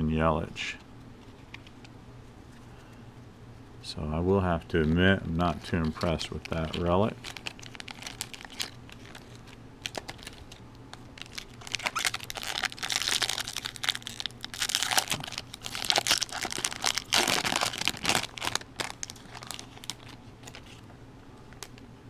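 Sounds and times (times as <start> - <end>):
foil wrapper crinkling: 4.8 - 20.8.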